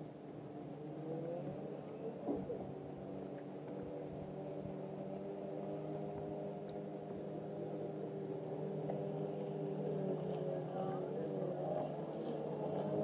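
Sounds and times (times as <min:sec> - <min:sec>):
boat motor running: 0:00.8 - 0:13.0.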